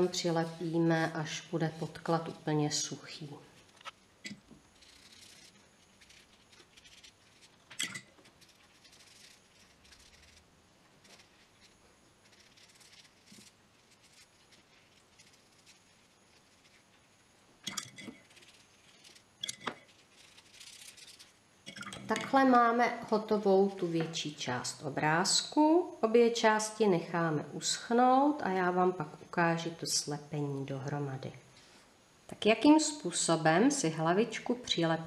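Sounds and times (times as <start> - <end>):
paintbrush swishing on paper: 4.7 - 7.6, 8.2 - 10.4, 11.0 - 17.1, 19.8 - 21.4.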